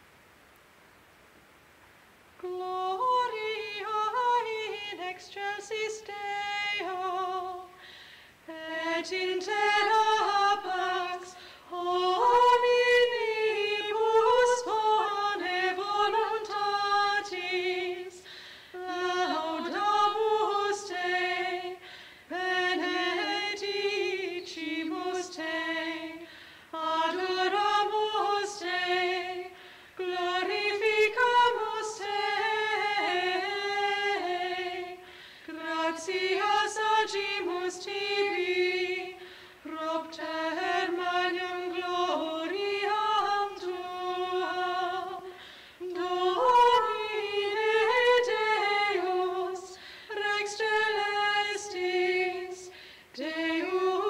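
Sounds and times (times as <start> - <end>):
unaccompanied high voice singing: 2.4 - 7.8, 8.5 - 18.2, 18.8 - 54.0.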